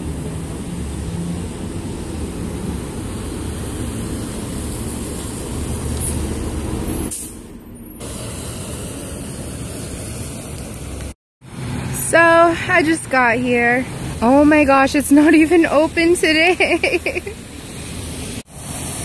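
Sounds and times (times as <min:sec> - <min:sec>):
tyre spray on wet road: 0:00.0 - 0:07.3, 0:15.0 - 0:19.0
bus engine rumble: 0:00.0 - 0:19.0
air-brake hiss: 0:08.0 - 0:11.2, 0:17.0 - 0:19.0.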